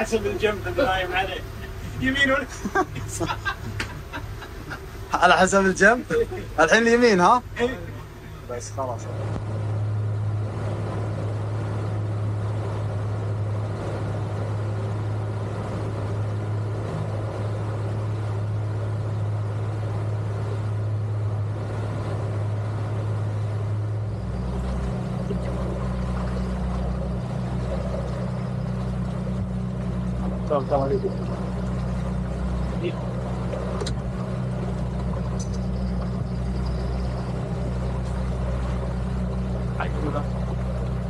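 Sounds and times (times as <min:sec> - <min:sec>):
outboard motors humming: 0:00.0 - 0:41.0
wake water rushing: 0:00.0 - 0:41.0.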